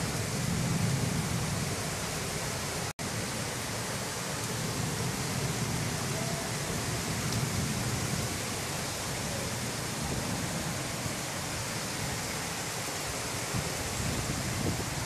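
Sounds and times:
rain falling: 0:00.0 - 0:15.0
gusting wind: 0:06.9 - 0:15.0.

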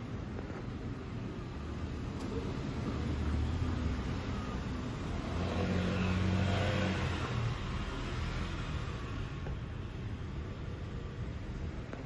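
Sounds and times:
motor vehicle passing: 0:03.3 - 0:09.5.

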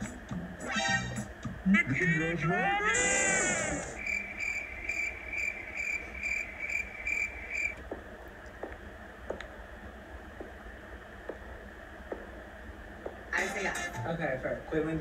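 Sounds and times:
cricket chirping: 0:03.9 - 0:07.8.

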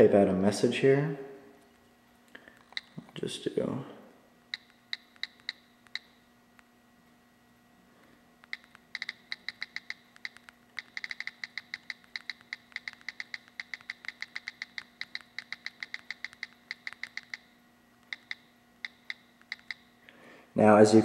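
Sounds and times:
phone keyboard clicks: 0:02.5 - 0:03.2, 0:04.5 - 0:06.7, 0:08.4 - 0:19.8.

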